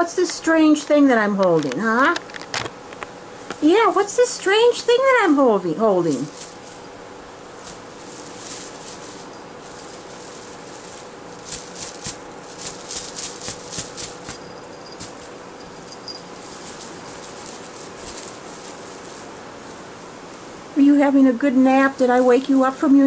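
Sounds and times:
collar bell jingling: 0:06.1 - 0:07.0, 0:07.6 - 0:19.3.

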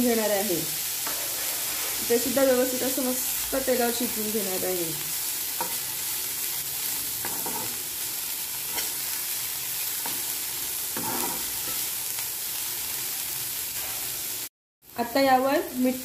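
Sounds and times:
food sizzling in hot oil: 0:00.0 - 0:16.0
metal spoon scraping and tapping pan: 0:01.0 - 0:01.6, 0:05.6 - 0:05.9, 0:07.2 - 0:07.8, 0:11.0 - 0:11.8.

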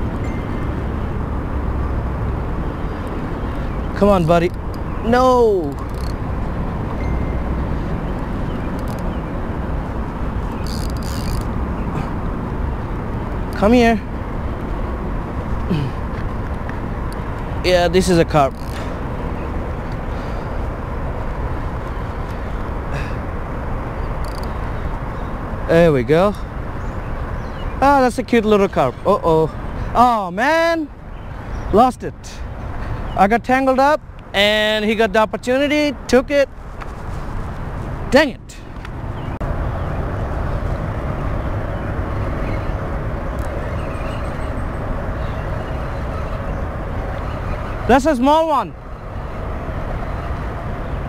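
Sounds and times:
city traffic rumble: 0:00.0 - 0:51.0.

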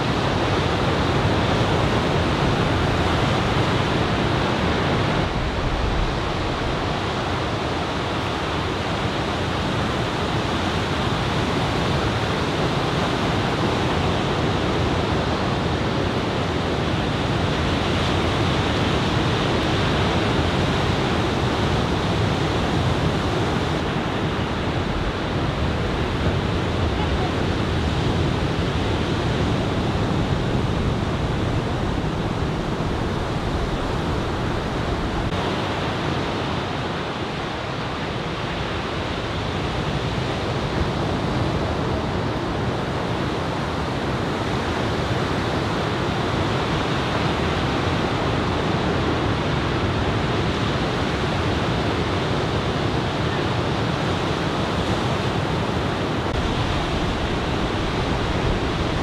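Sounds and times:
waves breaking: 0:54.1 - 0:59.0.

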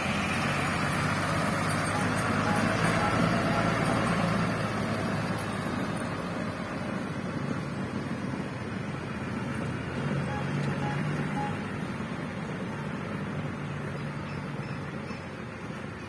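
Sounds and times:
truck engine running: 0:00.0 - 0:16.0
short faint peeps: 0:10.2 - 0:12.0.

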